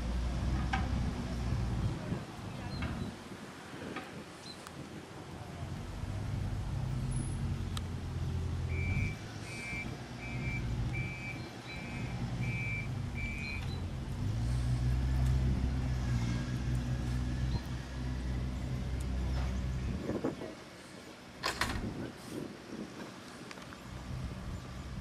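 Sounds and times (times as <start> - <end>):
low engine rumble: 0.0 - 4.0, 4.9 - 25.0
short beeps: 8.7 - 13.8.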